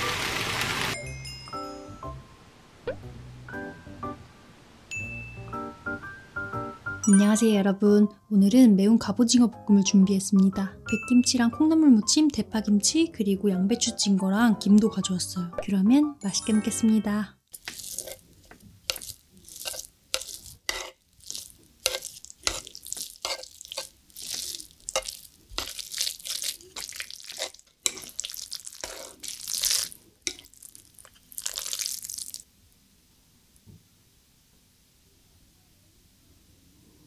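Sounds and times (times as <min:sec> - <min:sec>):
sizzling plate: 0:00.0 - 0:02.0, 0:17.5 - 0:32.5
chopsticks stirring sticky noodles: 0:17.5 - 0:32.4.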